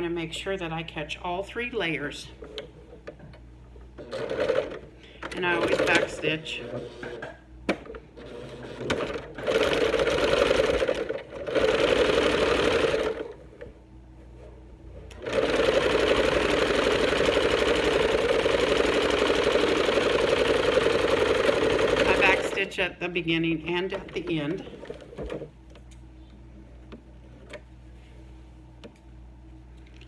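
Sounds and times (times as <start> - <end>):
electric sewing machine stitching: 4.0 - 4.8, 8.2 - 13.4, 15.1 - 22.6.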